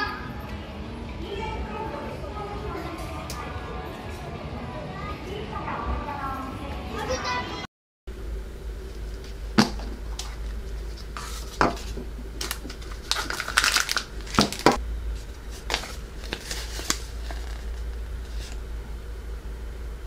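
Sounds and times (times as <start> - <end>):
paper leaflet rustling: 8.9 - 18.6
plastic bag crinkling: 9.1 - 18.6.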